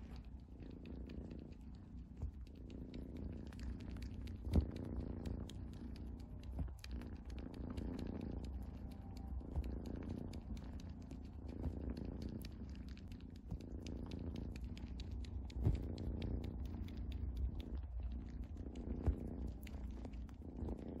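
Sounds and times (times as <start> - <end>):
cat purring: 0.0 - 21.0
faint crackles: 0.0 - 21.0.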